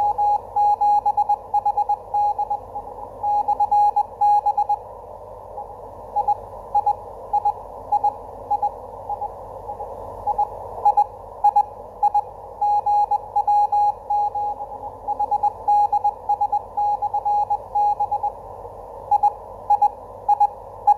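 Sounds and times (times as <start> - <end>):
morse code beeps: 3.2 - 4.8, 10.3 - 18.4, 19.1 - 20.9
radio band noise hiss: 8.6 - 10.7.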